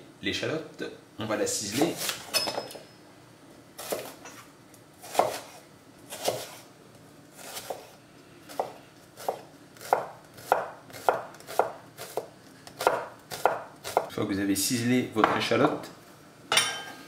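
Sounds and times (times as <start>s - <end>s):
knife chopping on wooden board: 3.8s - 4.2s, 5.0s - 6.6s, 7.4s - 7.9s, 8.5s - 14.1s.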